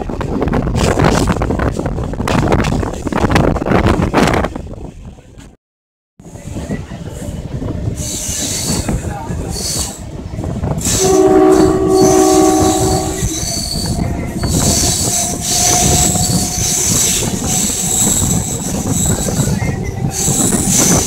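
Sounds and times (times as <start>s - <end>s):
train wheels rumbling on rails: 0.0s - 5.6s, 6.2s - 21.0s
train horn: 10.8s - 16.9s
high-pitched wheel squeal: 10.8s - 21.0s.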